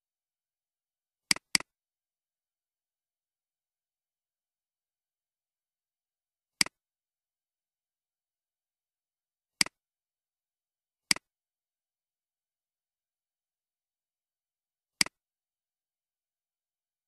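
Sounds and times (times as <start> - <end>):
computer mouse clicks: 1.3 - 1.7.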